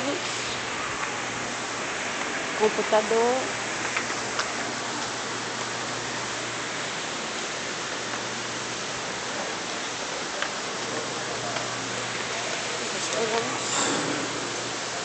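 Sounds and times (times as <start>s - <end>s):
steady rushing noise: 0.0s - 15.0s
low hum: 13.3s - 15.0s.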